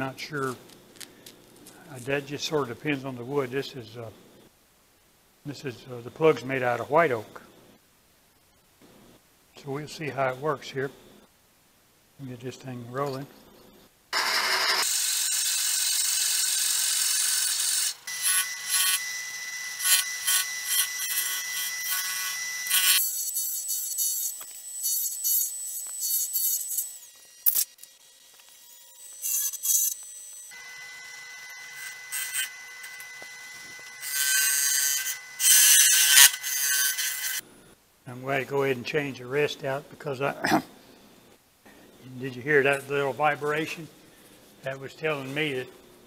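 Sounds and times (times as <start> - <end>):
drill bit boring into wood: 14.2 - 37.4
lathe whine: 14.2 - 37.4
hollowing tool scraping wood: 28.3 - 37.4.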